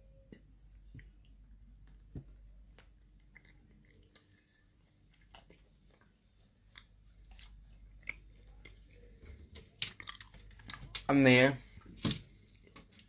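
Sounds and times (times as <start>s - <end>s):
faint chewing: 2.7s - 13.0s.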